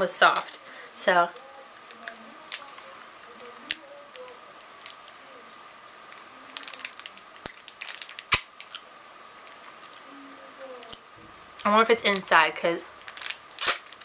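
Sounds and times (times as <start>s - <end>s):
candy clicking against teeth: 6.5s - 8.8s.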